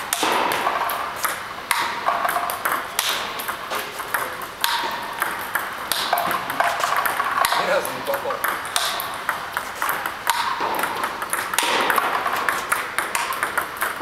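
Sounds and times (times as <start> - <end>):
ping pong ball on racket: 0.1 - 14.0
ping pong ball on table: 0.1 - 14.0.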